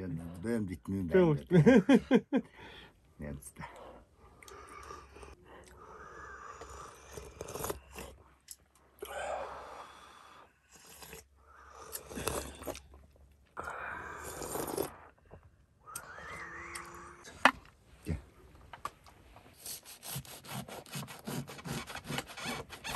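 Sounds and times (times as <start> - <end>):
person slurping broth: 4.4 - 8.2, 9.0 - 13.0, 13.6 - 15.2, 15.9 - 17.3.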